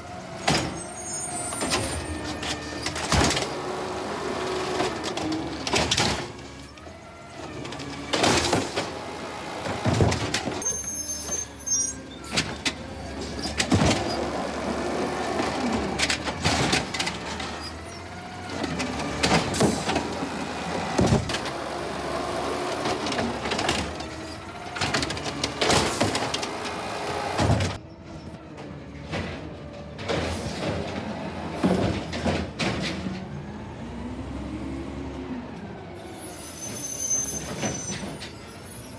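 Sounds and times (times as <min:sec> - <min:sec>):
hydraulics whining: 0:00.0 - 0:38.9
truck engine revving: 0:12.8 - 0:27.8.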